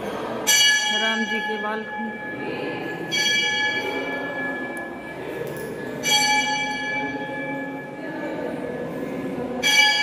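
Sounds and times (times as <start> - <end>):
low background murmur: 0.0 - 10.0
temple bell ringing: 0.0 - 10.0.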